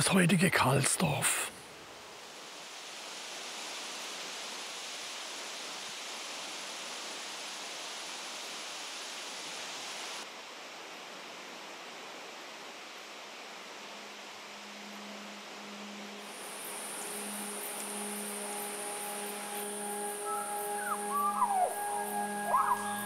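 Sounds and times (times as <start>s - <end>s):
steady rushing noise: 12.1s - 23.0s.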